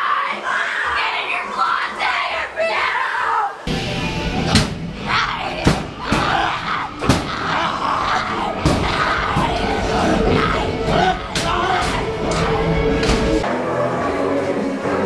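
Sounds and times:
people yelling and screaming: 0:00.0 - 0:03.7, 0:04.4 - 0:13.7
loud music: 0:03.7 - 0:15.0.

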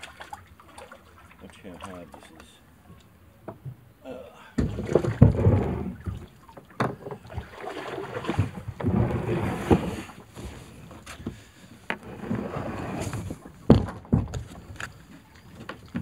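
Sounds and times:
kayak scraping over grass: 0:04.7 - 0:06.3, 0:07.2 - 0:13.8.

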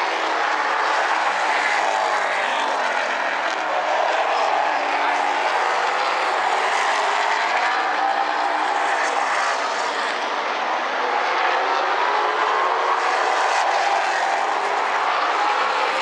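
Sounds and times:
race car engines at speed: 0:00.0 - 0:16.0.

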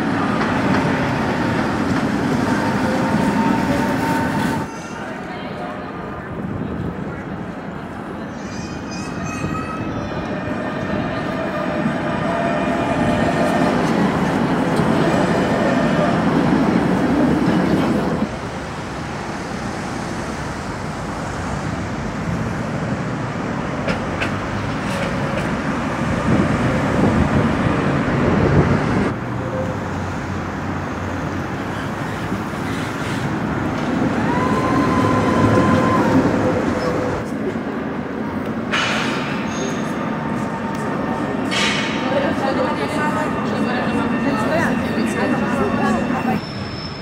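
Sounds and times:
street traffic noise: 0:00.0 - 0:47.0
tram rolling past: 0:00.0 - 0:47.0
city street noise hiss: 0:18.2 - 0:26.7, 0:27.3 - 0:42.0.

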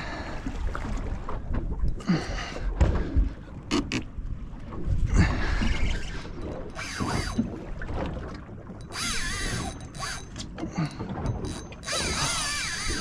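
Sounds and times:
fishing reel drag buzzing: 0:06.7 - 0:07.4, 0:08.8 - 0:10.4, 0:11.4 - 0:13.0.

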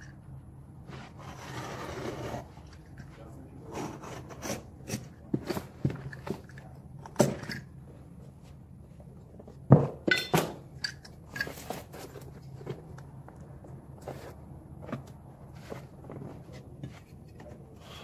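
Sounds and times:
utility knife cutting carpet: 0:01.0 - 0:02.5.

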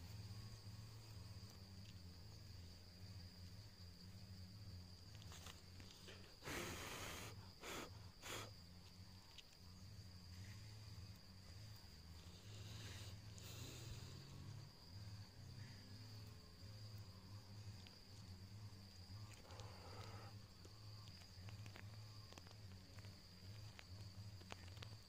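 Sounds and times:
insect trill: 0:00.0 - 0:25.0.

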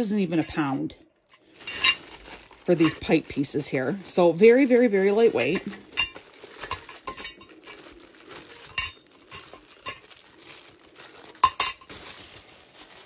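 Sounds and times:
metal pipes clinking: 0:00.0 - 0:03.2, 0:05.1 - 0:07.9, 0:08.5 - 0:10.3, 0:11.4 - 0:12.0
plastic bag rustling: 0:00.0 - 0:13.0.

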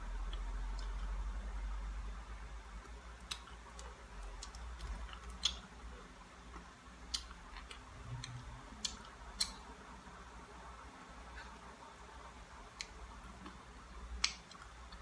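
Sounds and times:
faint low hum: 0:00.0 - 0:15.0
sharp eating clicks: 0:03.2 - 0:05.7, 0:06.5 - 0:09.7.

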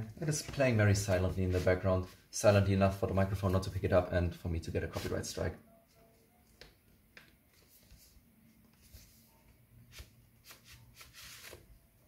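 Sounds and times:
soft rustles: 0:00.3 - 0:02.4, 0:07.3 - 0:11.6.

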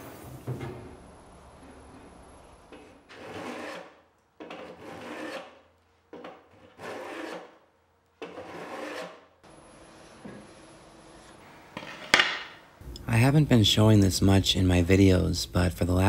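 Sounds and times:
block plane shaving wood: 0:02.8 - 0:07.6, 0:08.2 - 0:09.3.

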